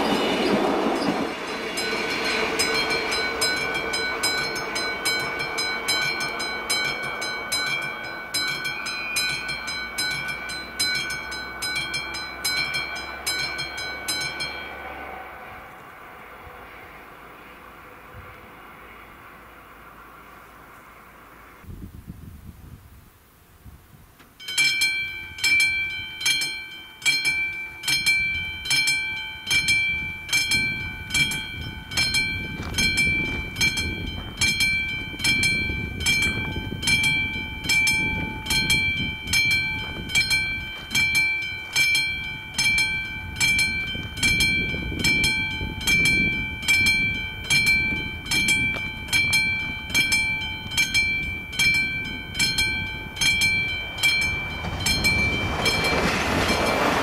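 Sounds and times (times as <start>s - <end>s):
low rumble: 0.0s - 9.1s
level crossing bell ringing: 0.0s - 15.2s, 24.4s - 57.0s.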